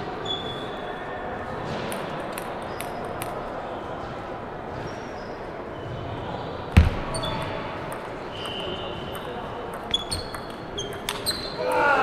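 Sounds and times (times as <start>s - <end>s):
table tennis ball bouncing: 1.9s - 3.4s, 6.8s - 11.8s.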